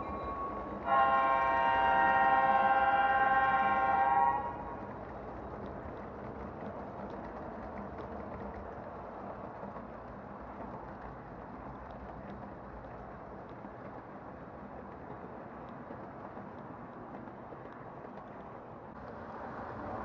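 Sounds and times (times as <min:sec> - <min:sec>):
model train horn: 0:00.0 - 0:04.8
model train rumbling on track: 0:00.0 - 0:20.0
faint clicks: 0:04.6 - 0:19.2.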